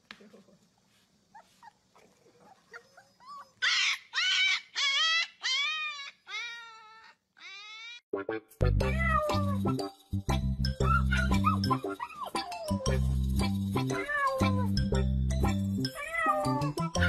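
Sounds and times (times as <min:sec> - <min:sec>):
puppies whimpering: 0:02.4 - 0:08.0, 0:10.8 - 0:13.0
puppies howling: 0:02.5 - 0:08.0, 0:10.8 - 0:13.0, 0:16.0 - 0:17.0.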